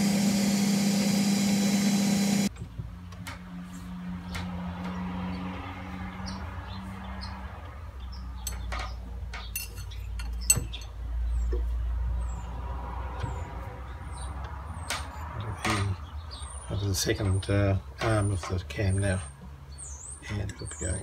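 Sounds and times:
lathe running with low rumble: 0:00.0 - 0:02.5
metallic clicks and clinks: 0:08.4 - 0:11.0.

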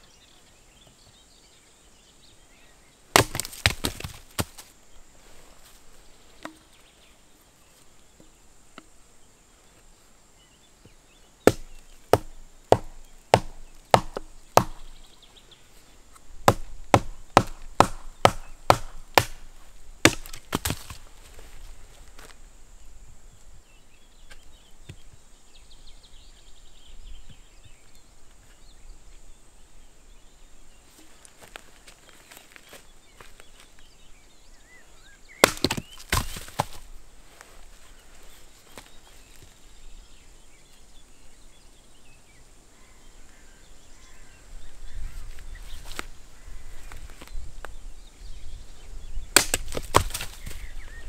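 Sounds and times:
hatchet chopping wood: 0:03.1 - 0:04.6, 0:11.5 - 0:15.0, 0:16.4 - 0:21.0, 0:35.4 - 0:36.8, 0:49.3 - 0:50.5.

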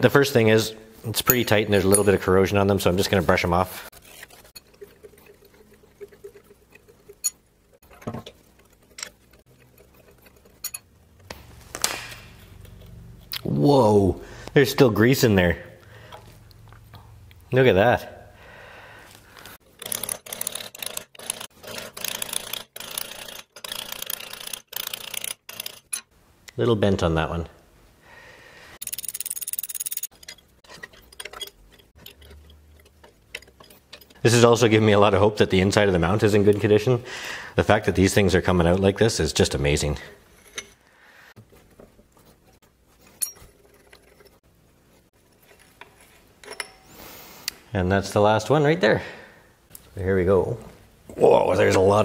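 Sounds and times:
bolt threads rasping: 0:03.9 - 0:11.4, 0:19.7 - 0:26.1, 0:28.8 - 0:34.8.

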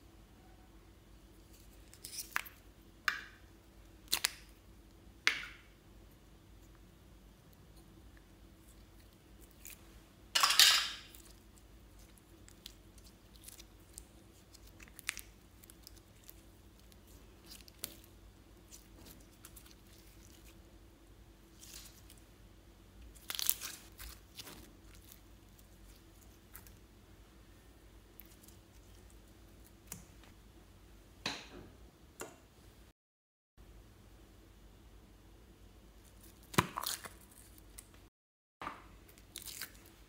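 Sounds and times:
sticky slime crackling: 0:11.1 - 0:20.6, 0:21.5 - 0:22.2, 0:23.0 - 0:26.8, 0:36.1 - 0:38.0, 0:39.1 - 0:40.0.

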